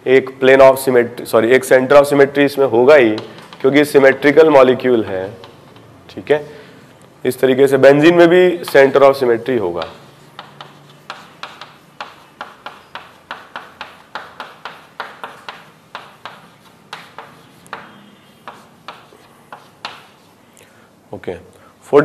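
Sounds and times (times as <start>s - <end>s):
writing taps and clicks: 3.1s - 3.6s, 5.4s - 5.9s, 8.6s - 8.9s, 9.7s - 20.4s.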